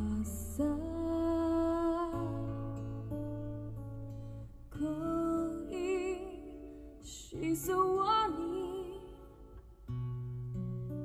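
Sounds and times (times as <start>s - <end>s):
woman singing ballad: 0.0s - 3.2s, 4.6s - 9.6s
acoustic guitar: 0.0s - 11.0s.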